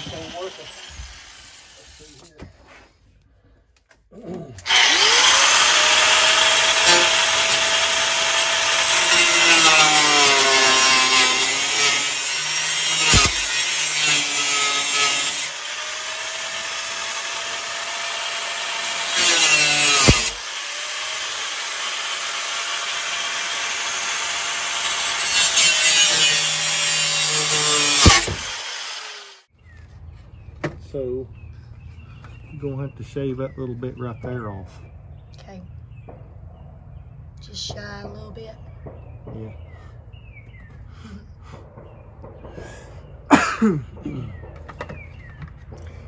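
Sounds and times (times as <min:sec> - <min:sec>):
angle grinder cutting steel: 0:00.0 - 0:02.4, 0:04.6 - 0:29.5.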